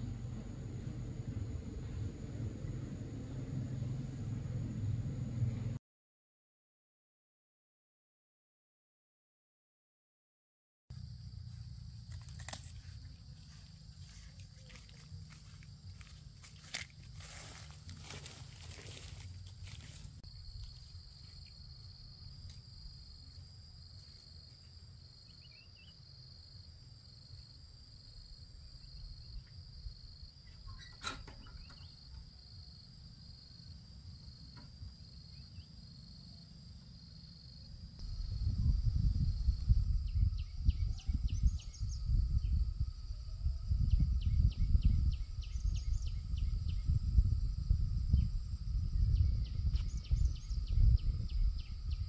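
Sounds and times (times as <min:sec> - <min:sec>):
loud low rumble: 0:00.0 - 0:05.8, 0:38.0 - 0:52.0.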